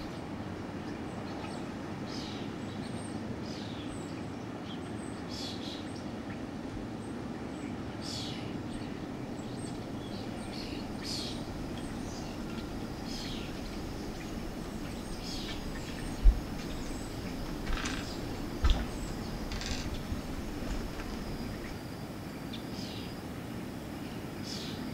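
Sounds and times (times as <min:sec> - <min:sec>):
steady low hum: 0:05.9 - 0:24.9
dull low thumps: 0:15.6 - 0:21.4.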